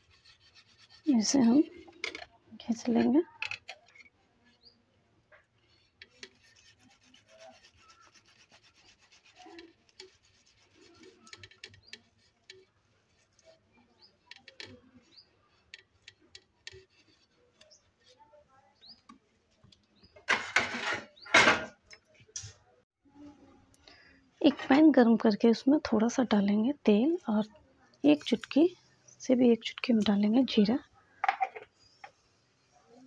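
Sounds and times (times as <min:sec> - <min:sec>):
potato scraping on grater: 0:00.0 - 0:01.9, 0:05.8 - 0:12.6.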